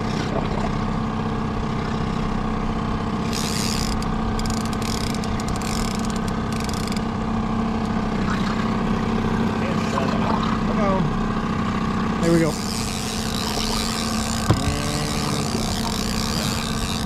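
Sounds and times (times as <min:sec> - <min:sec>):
outboard motor droning: 0:00.0 - 0:17.0
fishing reel clicking: 0:03.3 - 0:07.1, 0:12.2 - 0:17.0.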